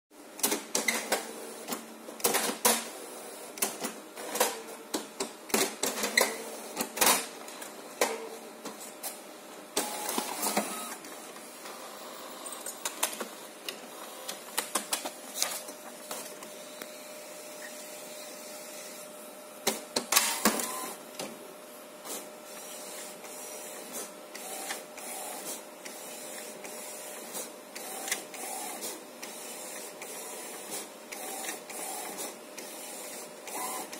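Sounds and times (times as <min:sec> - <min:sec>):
inkjet printer running: 0:09.7 - 0:33.9
loud printer clattering: 0:22.1 - 0:33.9.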